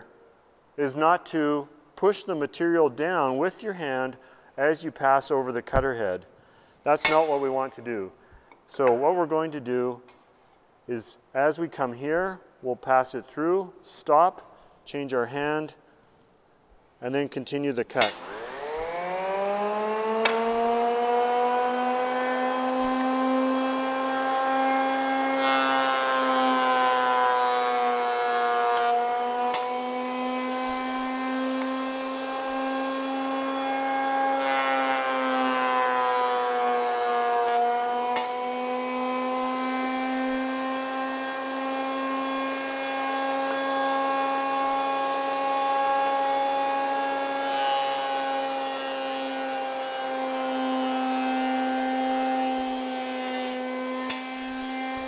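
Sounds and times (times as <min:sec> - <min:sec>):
knives cutting wood: 0:07.0 - 0:07.4, 0:27.4 - 0:31.8, 0:37.0 - 0:38.5, 0:52.0 - 0:55.0
jointer motor whining: 0:18.1 - 0:55.0.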